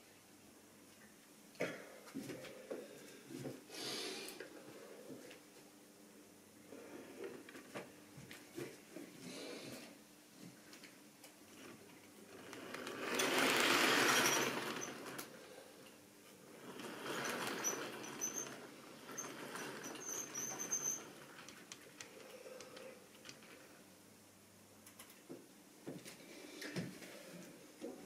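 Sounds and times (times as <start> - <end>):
model train wheels rumbling: 12.3 - 15.6, 16.5 - 21.7
high squeaks: 13.1 - 15.2, 17.0 - 21.3.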